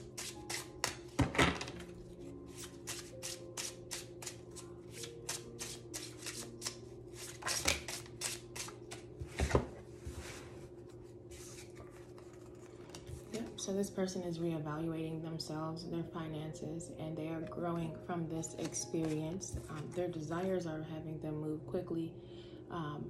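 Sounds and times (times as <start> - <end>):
cards being shuffled: 0.2 - 1.9, 2.5 - 9.6, 11.3 - 13.4, 18.6 - 20.0.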